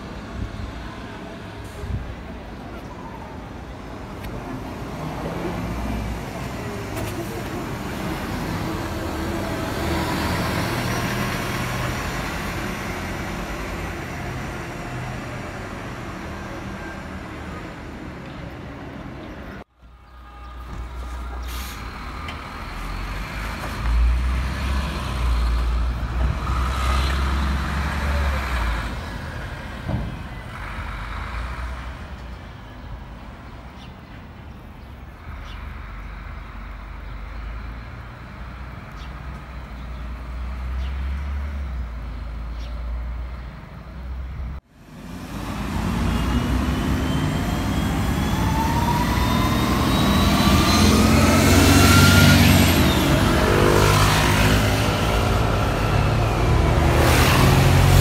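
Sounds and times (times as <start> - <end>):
bus engine rumble: 0.0 - 58.0
short air hisses: 21.4 - 21.9.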